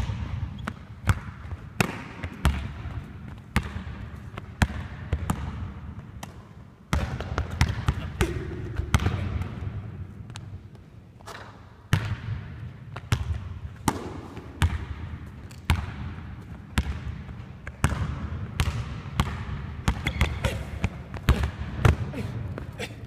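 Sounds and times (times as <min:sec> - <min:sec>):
basketball bouncing on hardwood: 0:16.8 - 0:22.0
shoe squeaks: 0:20.0 - 0:20.7.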